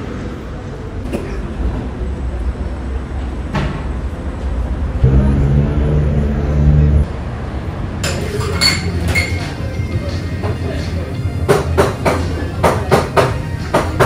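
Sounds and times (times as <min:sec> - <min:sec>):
engine hum: 0:00.0 - 0:08.0
engines rumbling: 0:00.0 - 0:12.7
cups and crockery clinking: 0:08.0 - 0:09.8.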